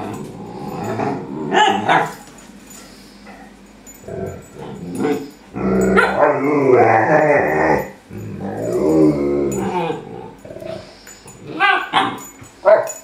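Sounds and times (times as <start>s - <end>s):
dog moaning while yawning: 0.0s - 2.2s, 3.3s - 12.6s
dog yips and growls: 1.5s - 2.2s, 11.5s - 13.0s.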